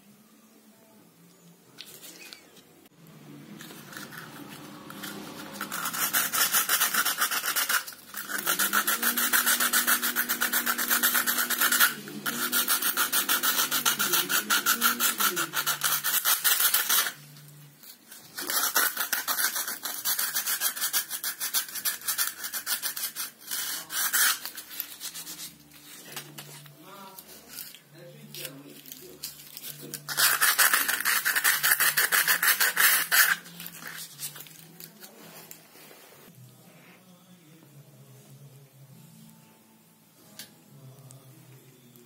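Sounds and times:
sandpaper rasping on wall: 3.7 - 17.2, 18.4 - 25.5, 30.1 - 34.2.

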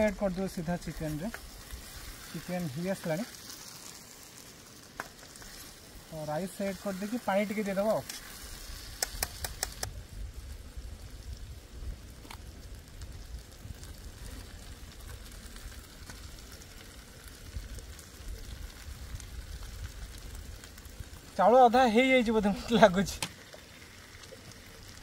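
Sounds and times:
pot simmering: 0.0 - 25.0
quick clicks: 8.9 - 9.9.

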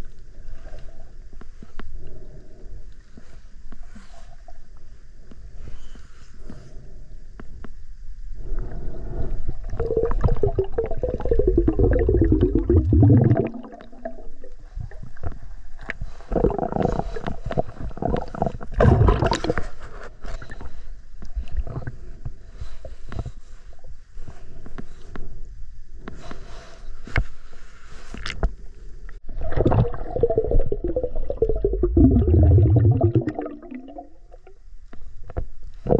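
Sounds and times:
water gurgling and knocking: 9.7 - 14.2, 18.1 - 19.6, 29.3 - 34.5.

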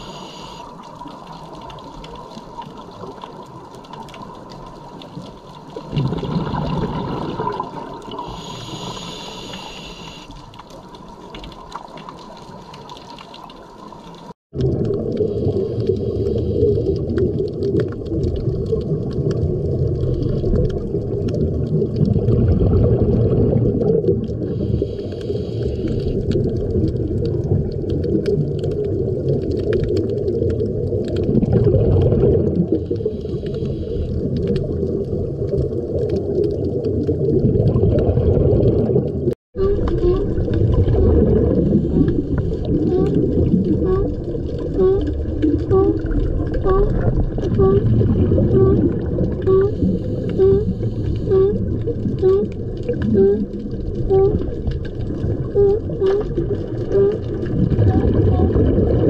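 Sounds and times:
scuba regulator bubbles: 0.0 - 59.0
low underwater rumble: 13.7 - 59.0.

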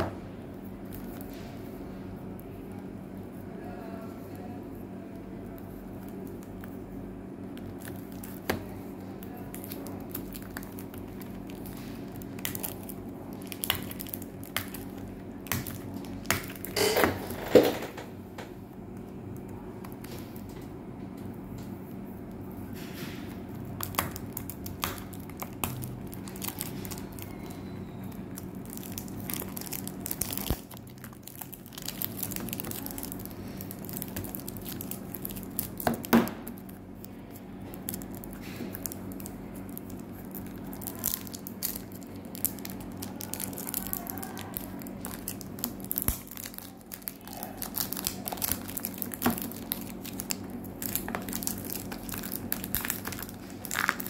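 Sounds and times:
steady low hum: 0.0 - 54.0
cellophane wrap crinkling: 5.3 - 18.0, 22.7 - 54.0
sharp cellophane snap: 28.3 - 36.8, 37.7 - 54.0.

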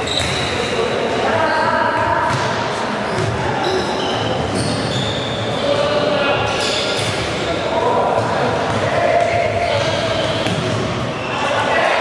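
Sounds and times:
shoes squeaking on court floor: 0.0 - 7.4, 9.6 - 11.5
people shouting: 11.3 - 12.0.

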